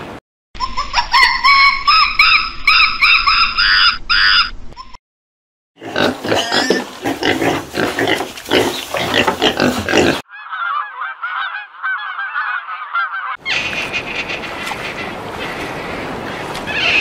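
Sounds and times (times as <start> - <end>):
pigs grunting and squealing: 5.8 - 10.3
geese honking: 10.3 - 17.0.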